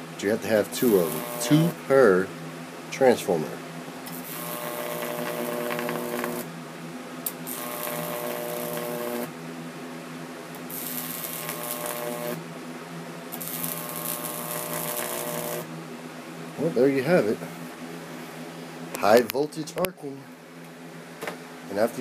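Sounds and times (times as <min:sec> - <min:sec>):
electrical hum: 0:00.0 - 0:22.0
electric arc crackling: 0:00.6 - 0:01.8, 0:04.1 - 0:06.5, 0:07.2 - 0:09.3, 0:10.5 - 0:12.4, 0:13.3 - 0:15.7.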